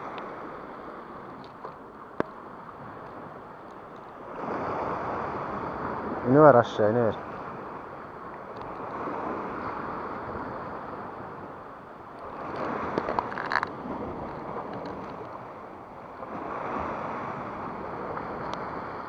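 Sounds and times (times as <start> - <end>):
waves washing against rocks: 4.2 - 19.0.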